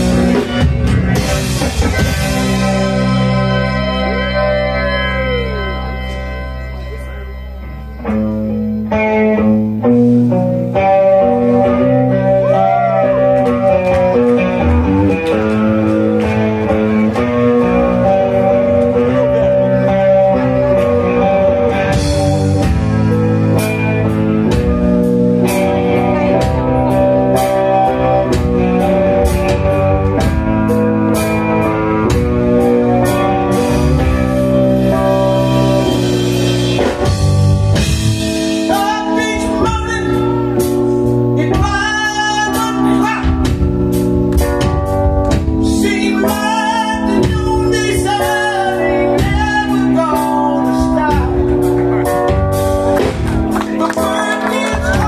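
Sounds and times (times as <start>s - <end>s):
rock band playing: 0.0s - 55.0s
man singing: 38.6s - 40.4s, 41.4s - 43.5s, 45.6s - 51.4s, 53.8s - 55.0s.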